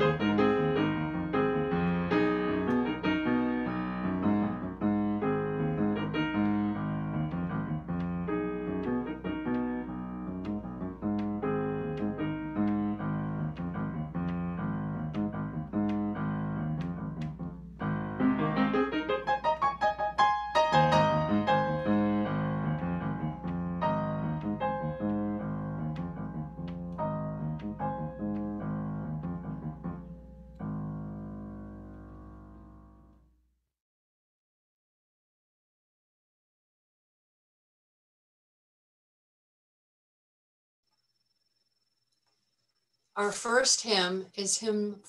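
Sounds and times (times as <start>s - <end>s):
solo piano piece: 0.0s - 33.4s.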